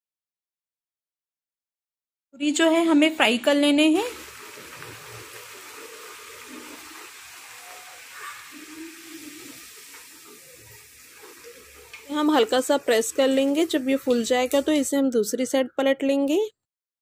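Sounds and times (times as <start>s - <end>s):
food deep-frying in oil: 2.7s - 15.3s.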